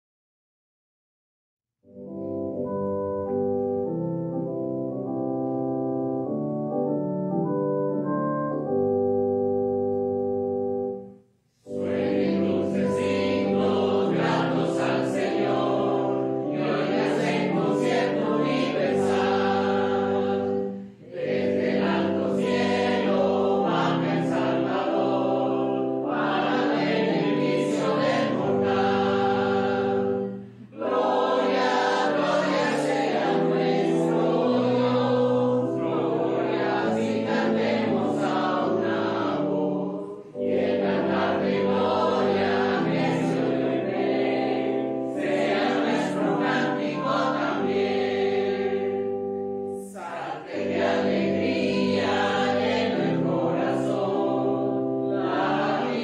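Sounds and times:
choir singing a hymn: 0:11.6 - 0:56.0.

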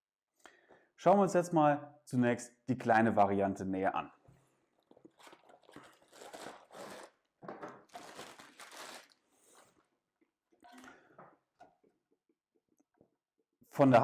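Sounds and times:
plastic bag crinkling: 0:04.9 - 0:09.8.

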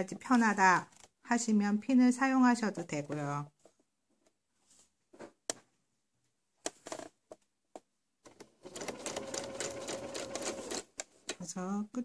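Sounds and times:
sewing machine stitching: 0:08.3 - 0:10.9.

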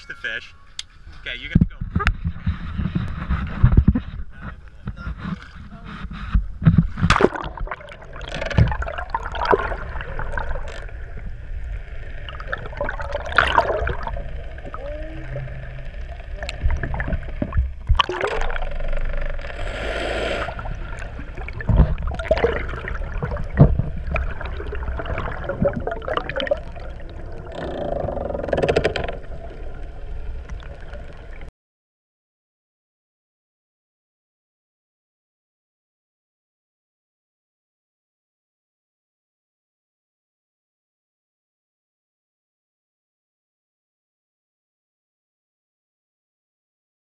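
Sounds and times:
muffled underwater water sloshing: 0:00.9 - 0:31.5
sharp knocks and splashes: 0:06.2 - 0:10.9, 0:16.4 - 0:18.9, 0:20.6 - 0:27.8.

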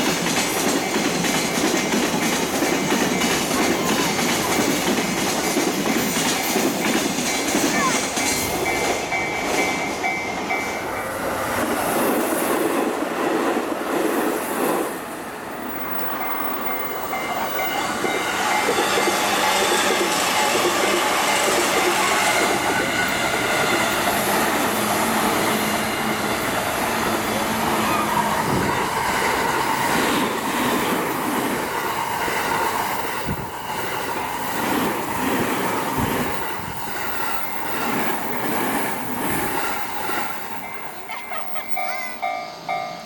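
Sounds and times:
electric train running past: 0:00.0 - 0:43.0.

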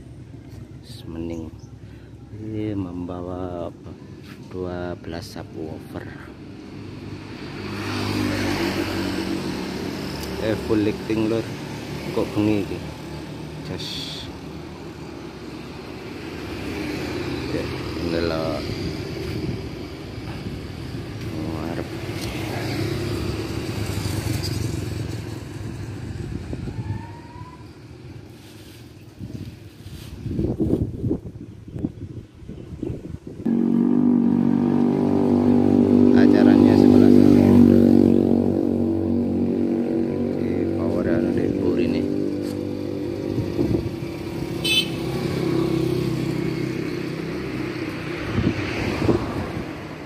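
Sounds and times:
motorcycle engine running: 0:33.5 - 0:47.9.

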